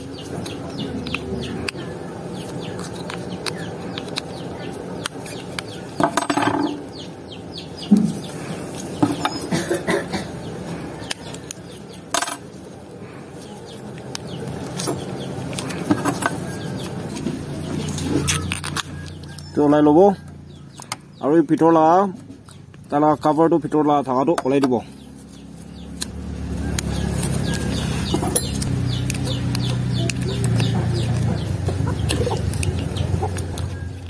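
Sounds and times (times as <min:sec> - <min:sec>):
chickens clucking: 0:00.0 - 0:12.0, 0:25.8 - 0:34.0.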